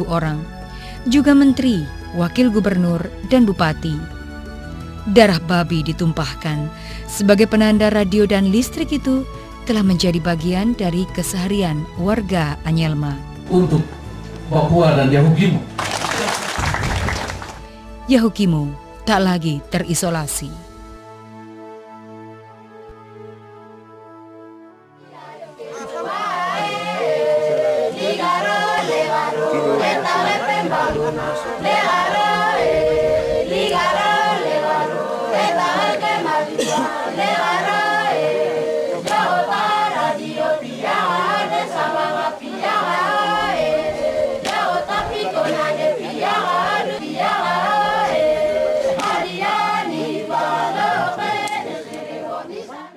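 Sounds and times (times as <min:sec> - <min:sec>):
choir singing a cappella: 0:00.0 - 0:00.4, 0:24.9 - 0:52.9.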